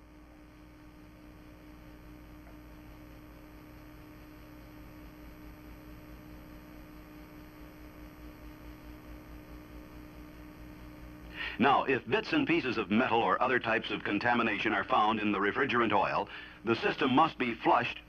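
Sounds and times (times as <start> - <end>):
electrical hum: 0.0 - 18.0
faint hiss: 10.8 - 18.0.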